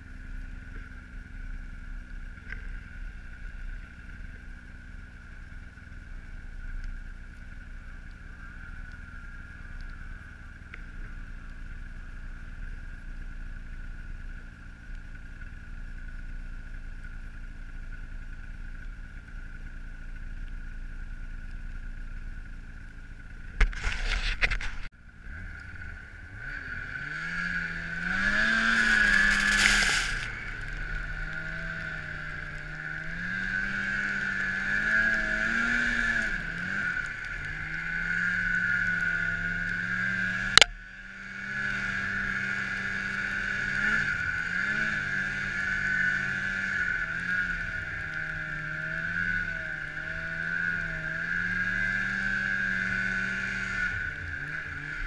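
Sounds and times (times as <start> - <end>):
snowmobile engine whining: 23.6 - 55.0
loud rushing noise: 28.5 - 30.4.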